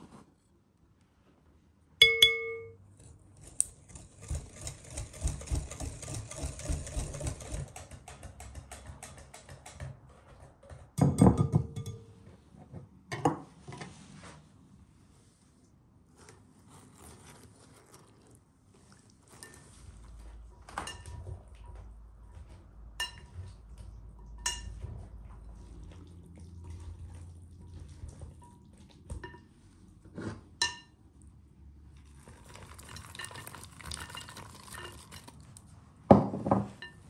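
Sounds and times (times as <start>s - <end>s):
ringing clink: 2.0s - 2.8s
whisk beating mixture in bowl: 3.4s - 10.4s, 16.7s - 20.0s, 32.1s - 35.6s.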